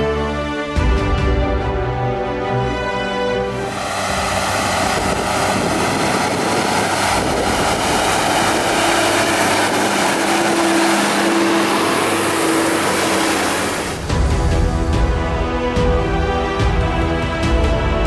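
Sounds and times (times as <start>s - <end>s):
tractor engine under load: 3.5s - 14.3s.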